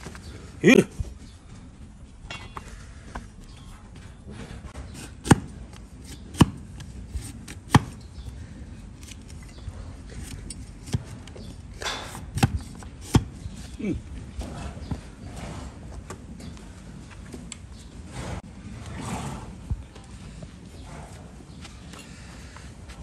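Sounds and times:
blade cutting through hoof: 4.8s - 8.1s, 8.9s - 13.7s.

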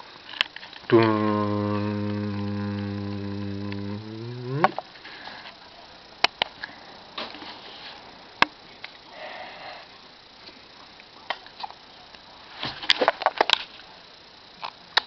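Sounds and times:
man holding long low note: 0.9s - 4.8s.

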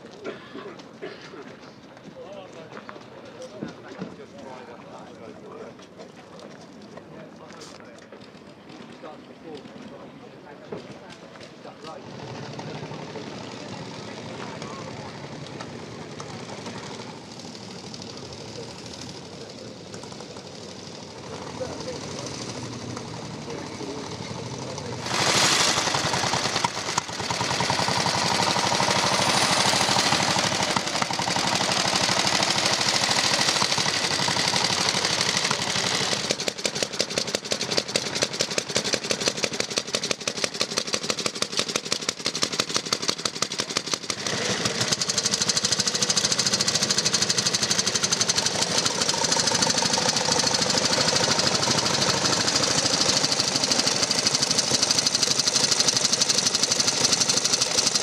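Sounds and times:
motorcycle engine firing beat: 24.0s - 58.0s.

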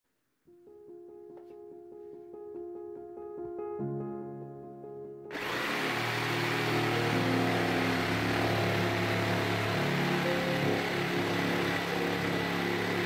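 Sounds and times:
background music: 0.6s - 13.0s
jigsaw cutting board: 5.3s - 13.0s.

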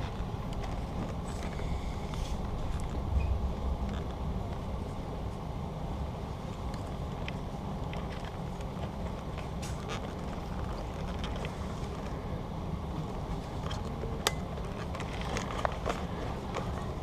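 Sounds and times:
low rumble: 0.0s - 9.4s.

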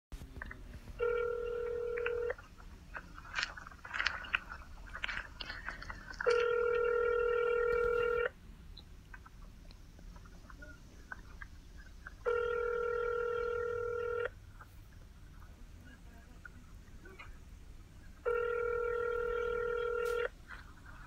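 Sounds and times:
faint clicks and rustling: 0.2s - 12.2s, 19.8s - 21.0s
telephone ringback tone: 1.0s - 2.4s, 6.2s - 8.3s, 12.2s - 14.3s, 18.2s - 20.3s.

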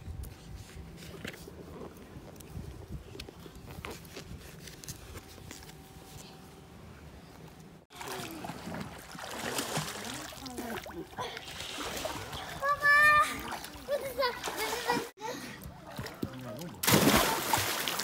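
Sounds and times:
water splashing: 7.9s - 15.1s, 15.9s - 18.0s.

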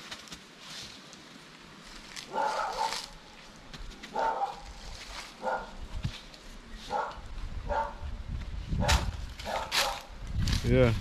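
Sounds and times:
dog barking: 2.3s - 3.1s, 4.1s - 4.6s, 5.4s - 5.8s, 6.9s - 8.0s, 8.8s - 10.1s.

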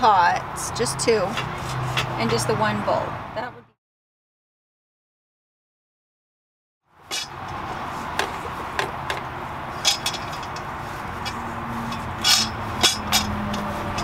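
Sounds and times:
steady background noise: 6.9s - 14.0s
metal pot and utensils clinking: 7.1s - 7.5s.

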